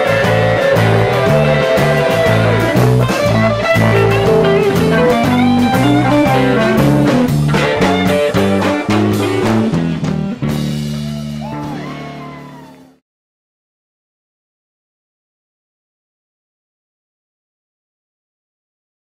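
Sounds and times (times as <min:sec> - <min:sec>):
live blues band playing: 0:00.0 - 0:12.9
drums: 0:00.0 - 0:13.0
electric guitars: 0:00.0 - 0:13.0.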